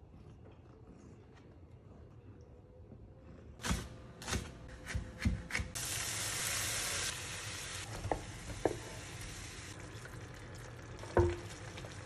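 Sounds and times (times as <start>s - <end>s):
frying pan sizzling: 5.8s - 12.0s.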